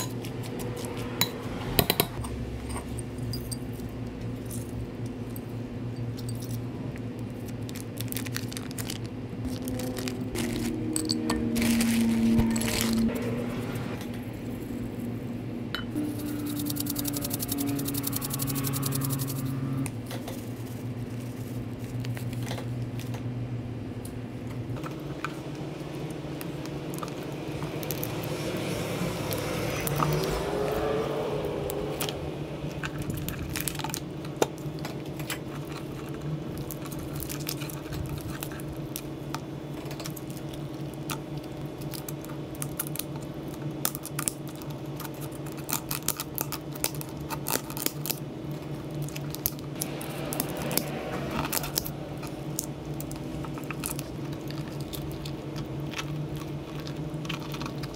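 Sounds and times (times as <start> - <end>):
steady low hum: 0.0 - 57.9
lobster shells clicking: 53.6 - 57.9.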